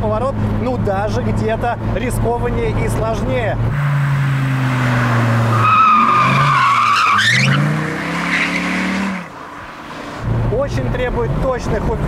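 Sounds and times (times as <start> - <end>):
car engine revving: 0.2 - 11.4
tyres squealing: 3.8 - 9.3.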